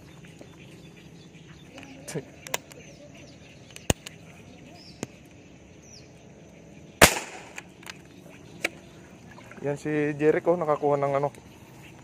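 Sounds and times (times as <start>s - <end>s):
air rifle shot: 7.0s - 7.7s.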